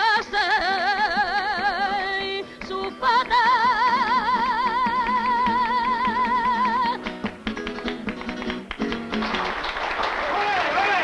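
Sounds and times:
woman singing with vibrato: 0.0 - 7.1
flamenco guitar strumming: 0.0 - 9.8.

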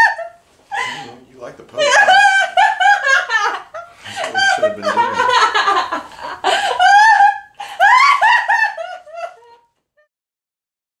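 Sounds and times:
woman laughing: 0.0 - 1.1, 1.8 - 9.7.

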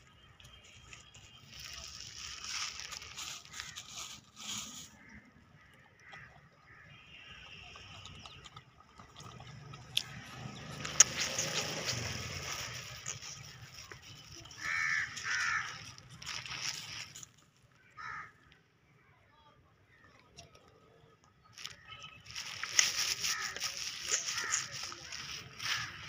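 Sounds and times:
rustling noise: 0.4 - 5.1, 10.8 - 17.6, 21.6 - 26.0.

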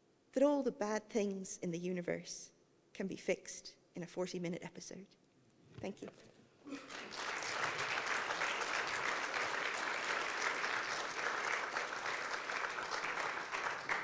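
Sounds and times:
audience applauding: 6.8 - 14.0.

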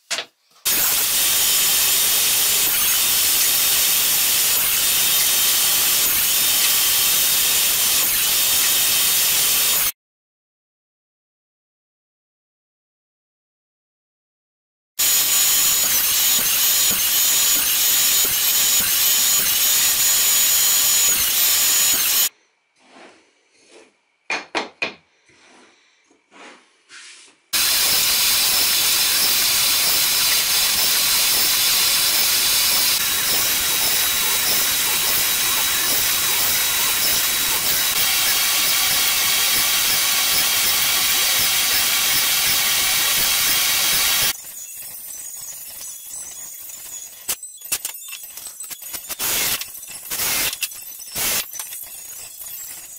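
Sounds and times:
dust extractor hissing: 0.7 - 9.8, 27.6 - 44.4
drill press drilling wood: 0.7 - 9.9, 15.0 - 22.3, 27.6 - 44.4.

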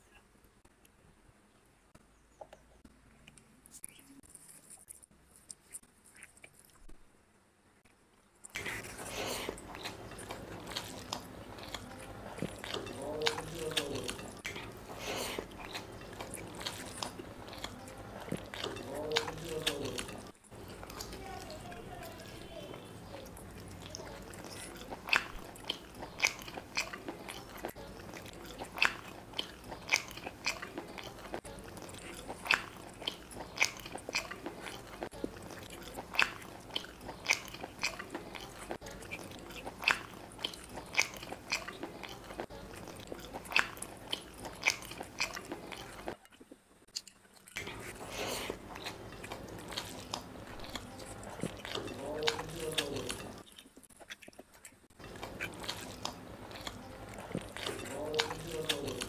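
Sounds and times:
person chewing with lip smacks: 23.3 - 59.0.

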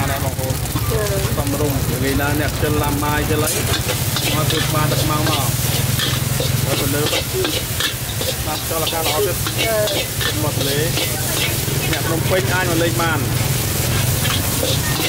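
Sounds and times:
rice sizzling: 0.0 - 15.0
metal spatula scraping wok: 3.0 - 15.0.

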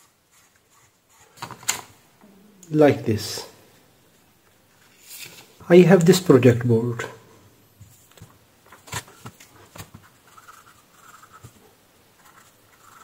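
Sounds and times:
pen scratching on paper: 10.2 - 11.6, 12.2 - 13.0.

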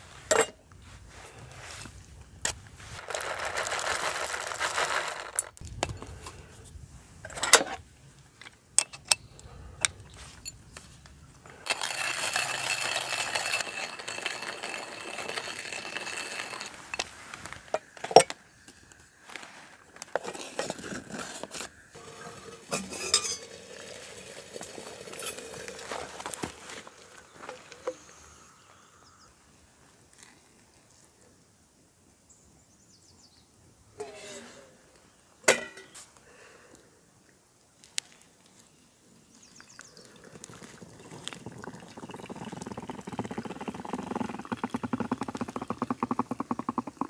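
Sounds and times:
coffee pouring from paper bag: 2.8 - 5.6, 11.6 - 17.5, 20.3 - 27.7, 40.0 - 44.6
hand coffee grinder rasping: 11.6 - 17.1, 40.4 - 47.0
metal containers clinking: 11.6 - 18.3, 22.0 - 26.8, 35.5 - 36.0
pot lid clinking: 22.3 - 23.6.

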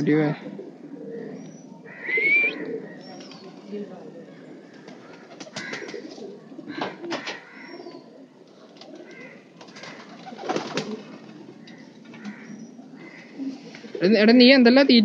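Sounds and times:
pigeons cooing: 0.0 - 14.2.

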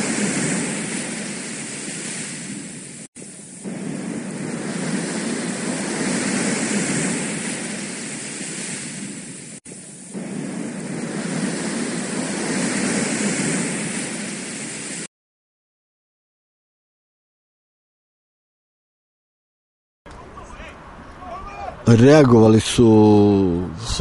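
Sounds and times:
rushing whoosh: 0.0 - 15.1.

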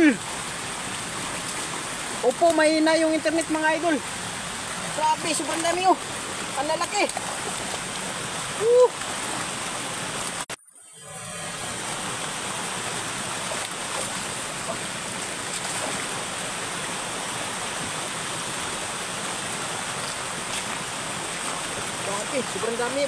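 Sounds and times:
stream water flowing: 0.0 - 23.0.

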